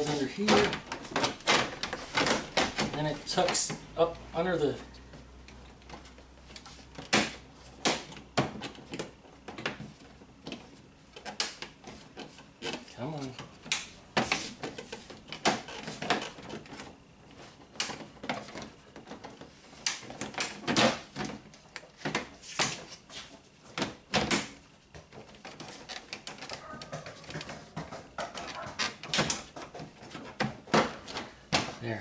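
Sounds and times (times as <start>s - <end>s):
plastic trim scraping and knocking: 0.0s - 4.0s, 5.5s - 31.9s.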